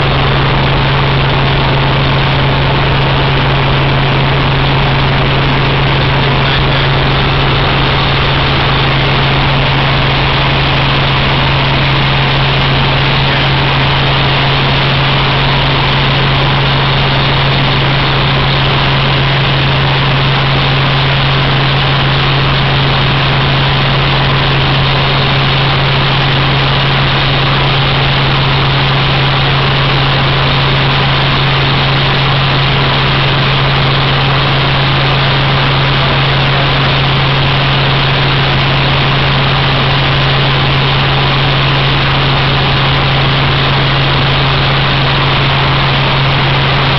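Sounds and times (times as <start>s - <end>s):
helicopter engine and rotor drone: 0.0s - 46.9s.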